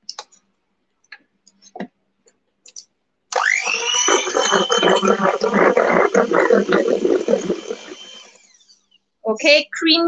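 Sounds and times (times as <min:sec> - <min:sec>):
electric hand mixer whine: 0:03.3 - 0:08.8
spatula scraping metal bowl: 0:04.0 - 0:08.3.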